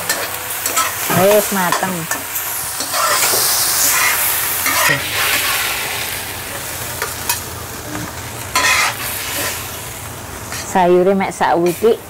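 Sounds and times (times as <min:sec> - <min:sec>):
leafy greens sizzling in a wok: 0:00.0 - 0:12.0
metal spatula scraping a pan: 0:02.8 - 0:05.8, 0:08.5 - 0:09.6.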